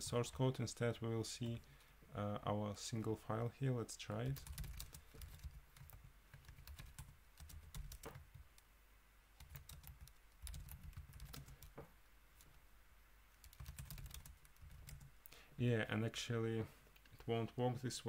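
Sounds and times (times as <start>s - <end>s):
faint keyboard typing: 1.4s - 1.9s, 4.2s - 8.7s, 9.4s - 12.6s, 13.3s - 15.1s.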